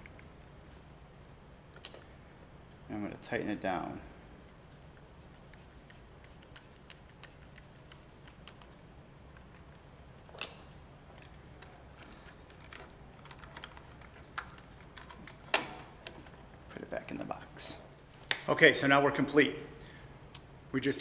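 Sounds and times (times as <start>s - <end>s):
switch and wires being handled: 9.3s - 16.8s.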